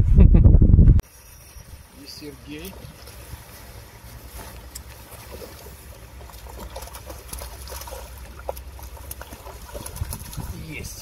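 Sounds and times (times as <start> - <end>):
wind rumble on microphone: 0.0 - 1.9, 9.3 - 11.0
fish splashing in water: 1.1 - 11.0.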